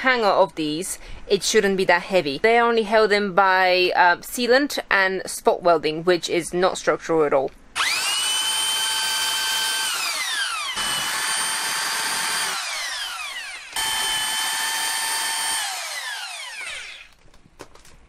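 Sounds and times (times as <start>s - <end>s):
electric drill boring into sheet metal: 7.8s - 17.2s.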